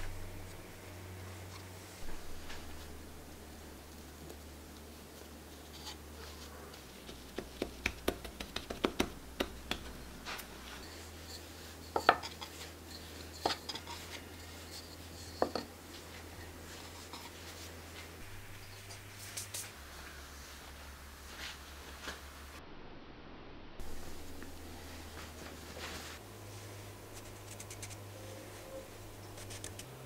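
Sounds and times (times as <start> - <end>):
hands rubbing dough: 1.3 - 22.3
knocks on wooden board: 7.4 - 9.9.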